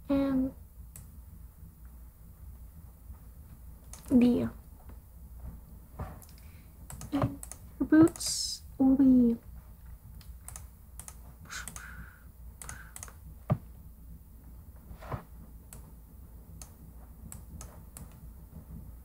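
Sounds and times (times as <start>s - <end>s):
steady low hum: 0.0s - 19.0s
keyboard and mouse clicks: 3.8s - 4.2s, 6.2s - 8.4s, 10.2s - 11.9s, 12.6s - 13.6s, 16.6s - 18.2s.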